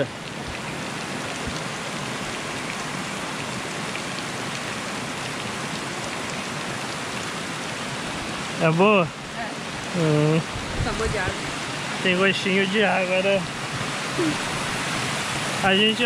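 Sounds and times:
creek flowing: 0.0 - 16.0.

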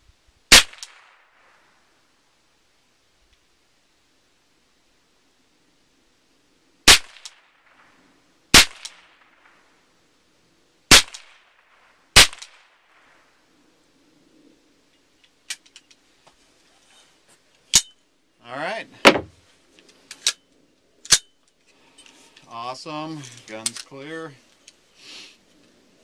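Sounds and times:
rifle shots with short echo: 0.5 - 1.7, 6.8 - 9.7, 10.9 - 13.2, 19.0 - 19.4.

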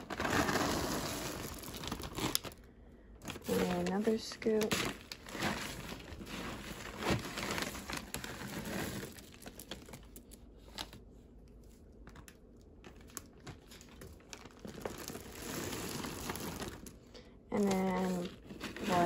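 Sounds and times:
plastic bag rustling: 0.0 - 11.0, 11.6 - 19.0
pellets clicking on plastic: 3.2 - 10.3.

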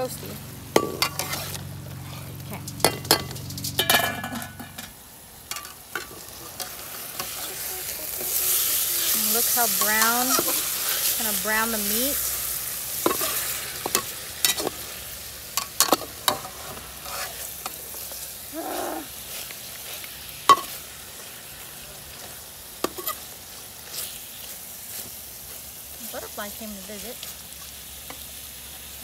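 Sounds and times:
beef sizzling in a wok: 0.0 - 29.0
metal spatula scraping a wok: 0.7 - 18.4, 22.2 - 25.6.

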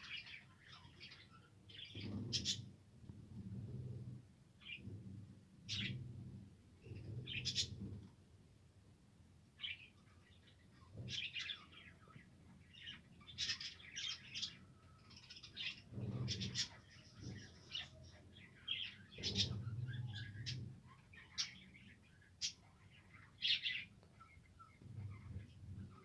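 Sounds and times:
budgerigars chirping and warbling: 0.0 - 2.7, 5.7 - 6.1, 6.8 - 8.0, 9.6 - 26.0.

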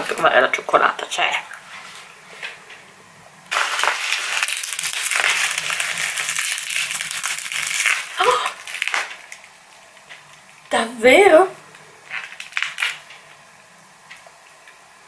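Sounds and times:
plastic packaging crinkling: 3.5 - 10.7, 11.7 - 13.5
vocal exclamation: 8.2 - 8.6.

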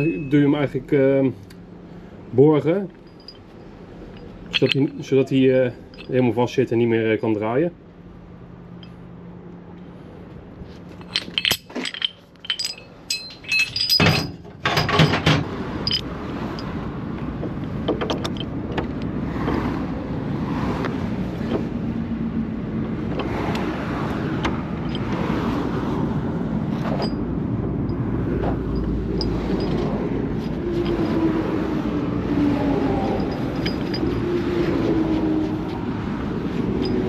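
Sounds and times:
vehicle engine and road noise: 0.0 - 37.0
metal towing gear clanking: 2.7 - 7.4, 10.7 - 16.8, 17.4 - 19.6, 24.4 - 25.3, 26.7 - 31.6, 32.3 - 35.8, 36.5 - 37.0.

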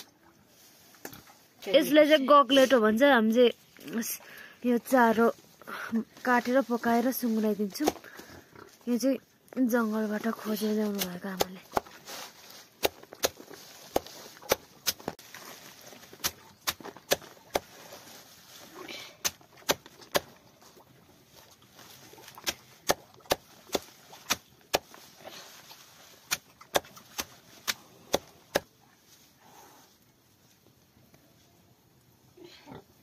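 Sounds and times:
heavy knife chopping leafy fodder: 10.9 - 12.1, 22.4 - 25.0, 26.3 - 28.7.

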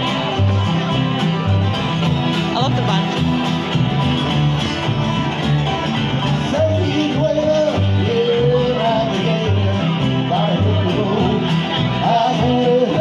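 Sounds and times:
acoustic string band playing: 0.0 - 13.0.

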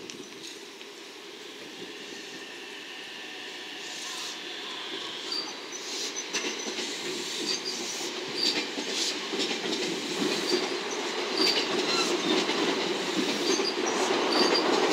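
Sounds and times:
train wheels rumbling on rails: 0.0 - 14.9
faint high wheel squeals: 2.0 - 6.7.

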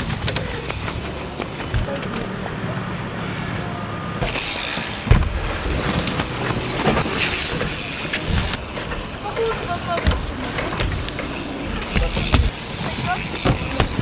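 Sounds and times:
bike tyres rolling and hissing: 0.0 - 14.0
sharp thump: 5.0 - 5.6.

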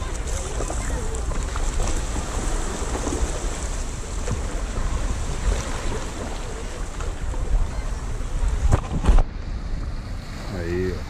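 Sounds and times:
water washing along kayak hull: 0.0 - 11.0
wind buffeting microphone: 0.0 - 11.0.

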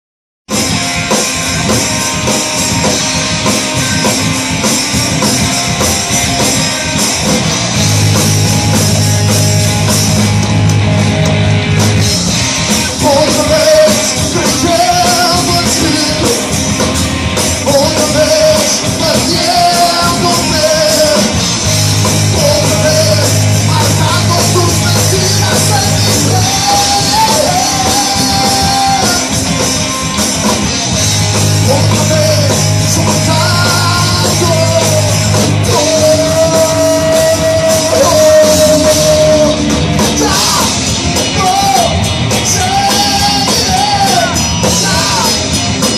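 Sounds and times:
bass guitar: 0.5 - 45.9
drum kit: 0.5 - 45.9
electric guitar: 0.5 - 45.9
man singing: 12.8 - 16.6, 17.6 - 29.4, 31.6 - 45.9.

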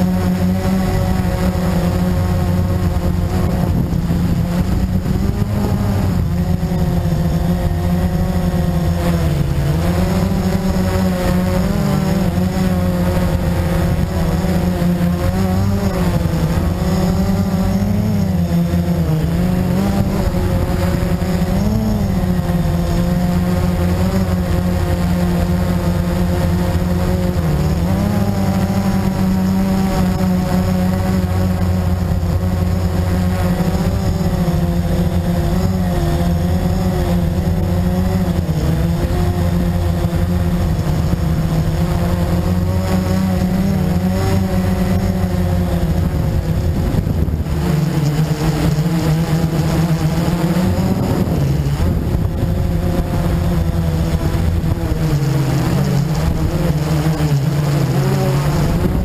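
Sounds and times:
quadcopter motors buzzing: 0.0 - 59.0.

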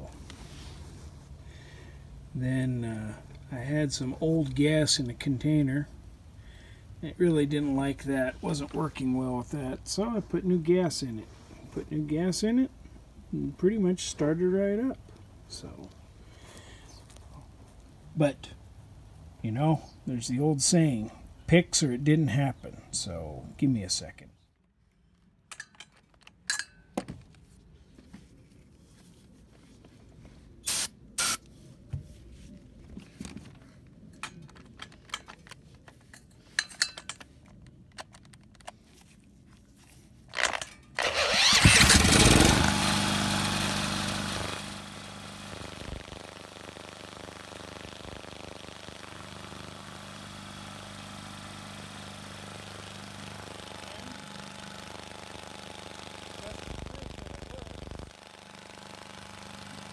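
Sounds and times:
cordless drill spinning engine: 40.3 - 59.9
generator engine running: 41.0 - 59.9.

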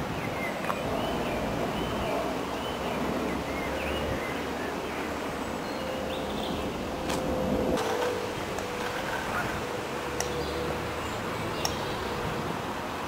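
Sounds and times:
small birds chirping: 0.0 - 7.0, 8.8 - 12.3
steady low rumble: 6.0 - 10.4.

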